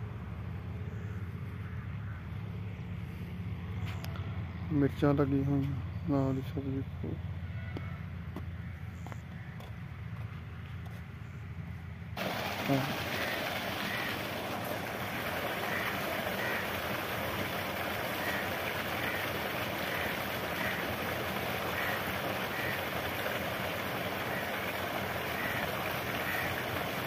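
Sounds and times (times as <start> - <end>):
water gushing into concrete tank: 12.2 - 27.0.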